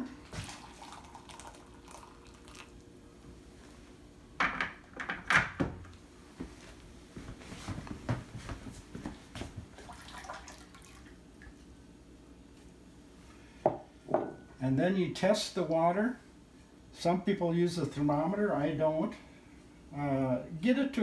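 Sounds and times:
water poured into a bowl: 0:00.3 - 0:02.8, 0:09.8 - 0:11.2.

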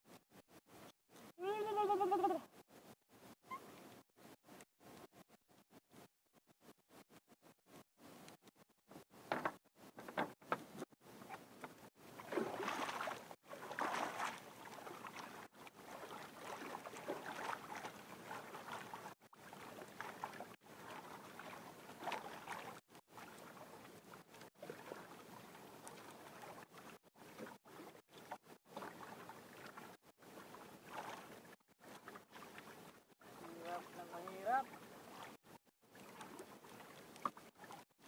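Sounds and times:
water lapping against canoe hull: 0:02.5 - 0:38.0.

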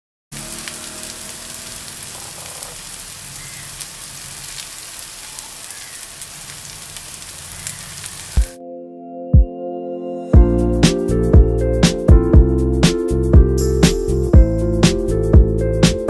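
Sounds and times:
oil crackling and popping: 0:00.3 - 0:08.6
fish sizzling in oil: 0:00.4 - 0:08.6.

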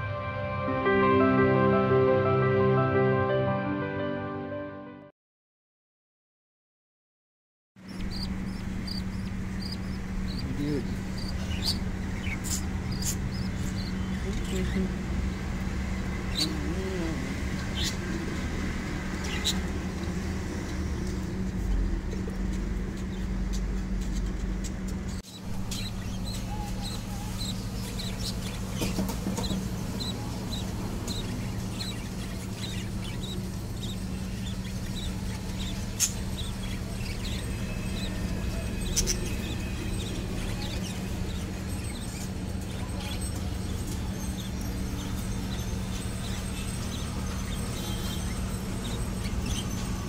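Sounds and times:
budgerigar chicks peeping: 0:07.8 - 0:18.5, 0:22.4 - 0:50.0
steady low hum: 0:07.8 - 0:47.6.

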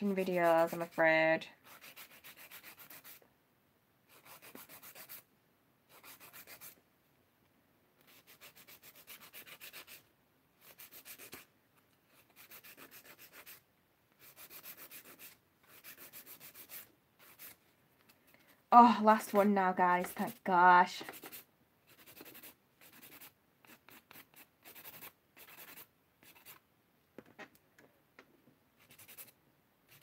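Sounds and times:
nail file rasping on nails: 0:00.2 - 0:03.2, 0:04.1 - 0:05.2, 0:05.9 - 0:06.8, 0:08.0 - 0:10.0, 0:10.6 - 0:11.5, 0:12.1 - 0:13.6, 0:14.2 - 0:17.6, 0:20.0 - 0:20.4, 0:21.0 - 0:26.6, 0:28.8 - 0:30.0.

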